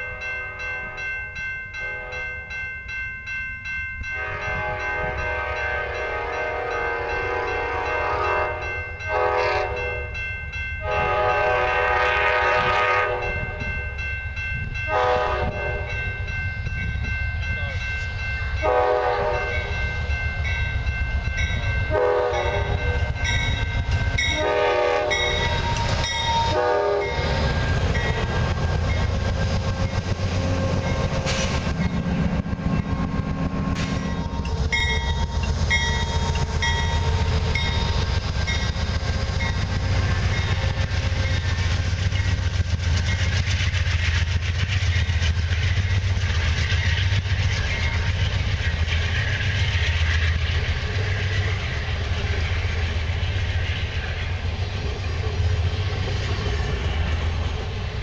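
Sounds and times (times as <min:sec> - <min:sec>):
locomotive horn blasts: 0:01.8 - 0:02.4, 0:04.1 - 0:10.2, 0:10.8 - 0:13.7, 0:14.9 - 0:16.0, 0:18.6 - 0:19.9, 0:21.9 - 0:23.3, 0:24.2 - 0:27.3
train wheels rumbling on rails: 0:03.6 - 0:58.0.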